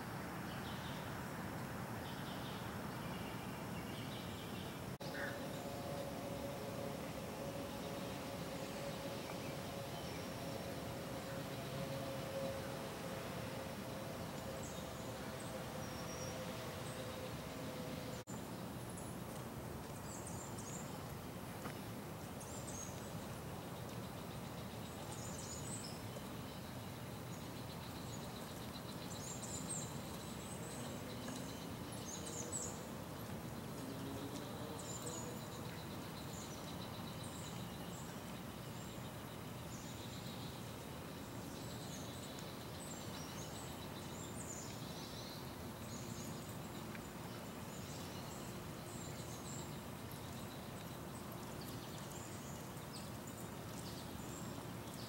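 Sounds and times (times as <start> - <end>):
steady background hum: 5.0 - 18.3
faint high whine: 5.0 - 19.2.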